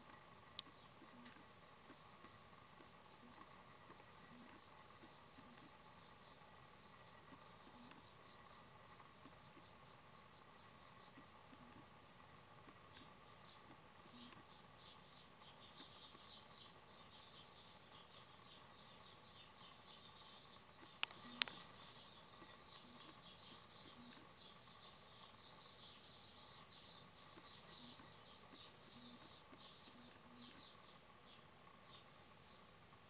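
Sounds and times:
nestlings cheeping: 17.7 - 32.1
sharp clicks: 20.8 - 21.7.

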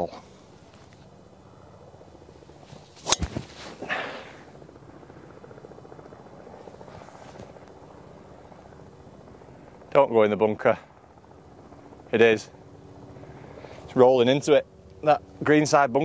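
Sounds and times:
golf ball struck with crack: 3.0 - 3.6.

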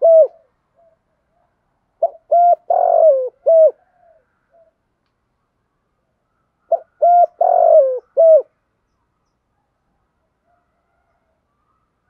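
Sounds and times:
faint bird chirps: 8.8 - 10.1.

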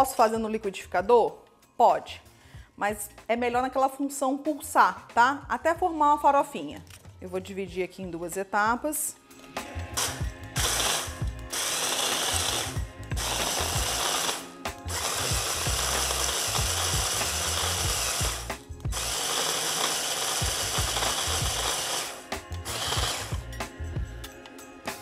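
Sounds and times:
hand blender chopping biscuits: 10.0 - 23.4.

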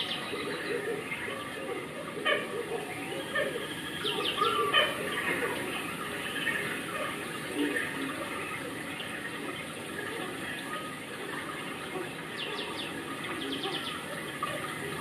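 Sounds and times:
bird chirping: 2.7 - 8.2.

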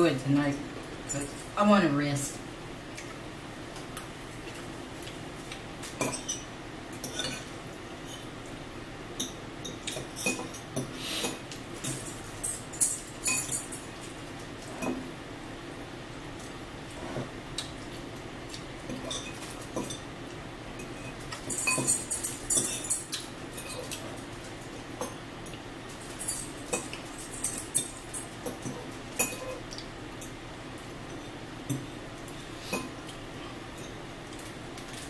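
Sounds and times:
steady low hum: 0.0 - 35.0
forks clinking against bowls: 5.8 - 8.2, 9.2 - 13.9, 18.9 - 20.1, 20.8 - 24.4, 25.0 - 32.0.

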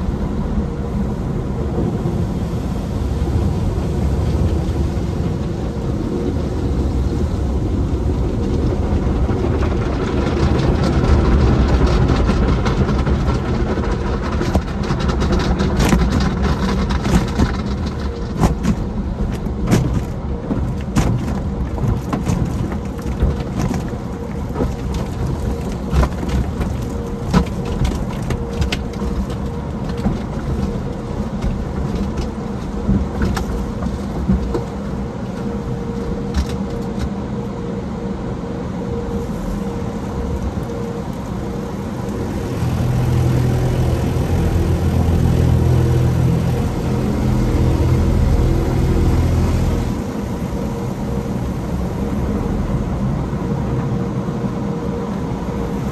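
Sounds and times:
low rumble: 0.0 - 54.8
wash strips slapping on windshield: 9.8 - 35.6.

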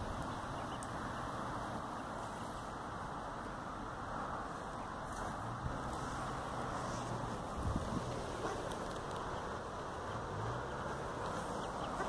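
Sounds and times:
wind rumble on microphone: 4.2 - 12.0.

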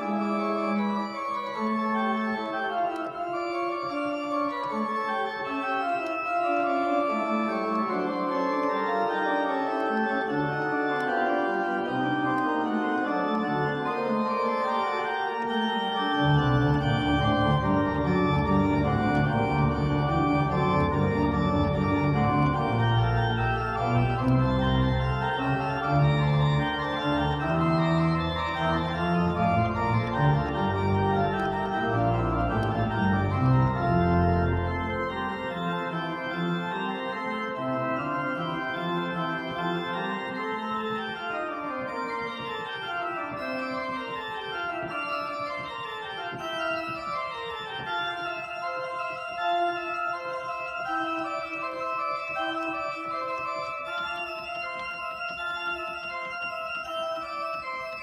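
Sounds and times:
church organ chords: 0.0 - 58.0
deep organ pedal bass: 15.7 - 43.8.

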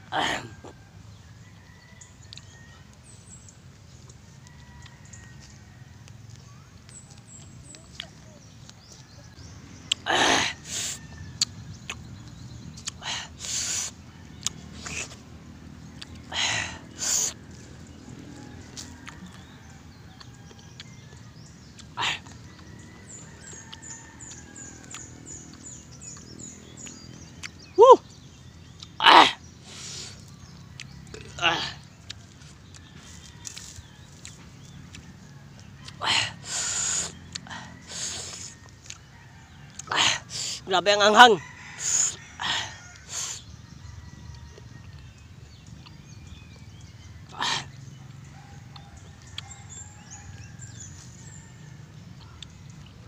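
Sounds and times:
birds chirping: 0.0 - 53.0
chewing clicks: 2.2 - 2.5, 9.8 - 10.0, 11.2 - 13.0, 14.3 - 15.2, 17.5 - 27.6, 28.7 - 29.0, 30.2 - 31.4, 32.0 - 36.0, 36.9 - 39.1, 39.7 - 39.9, 44.3 - 46.7, 48.0 - 51.4, 52.1 - 53.0.

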